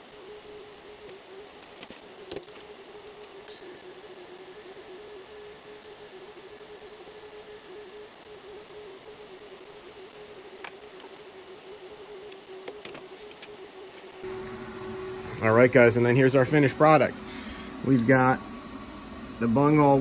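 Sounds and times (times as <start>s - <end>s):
faint hum: 0.0s - 20.0s
welding arc buzzing hiss: 14.1s - 20.0s.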